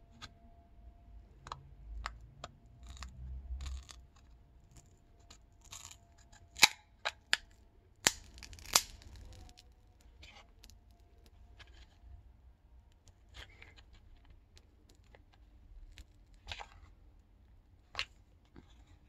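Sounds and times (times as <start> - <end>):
plastic pry tool clicking and scraping: 1.4 - 11.9
sharp snaps: 8.0 - 9.6.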